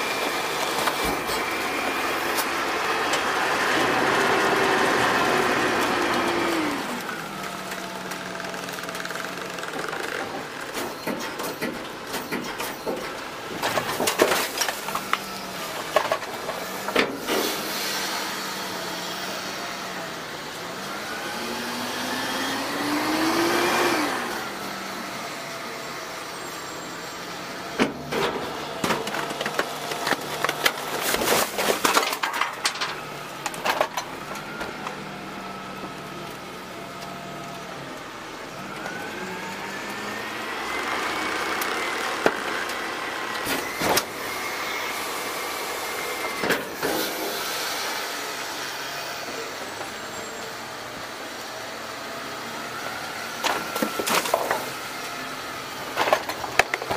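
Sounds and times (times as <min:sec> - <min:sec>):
garbage truck hydraulic whine: 0:00.0 - 0:56.9
trash clattering into hopper: 0:10.3 - 0:17.8, 0:27.7 - 0:34.8, 0:55.9 - 0:56.9.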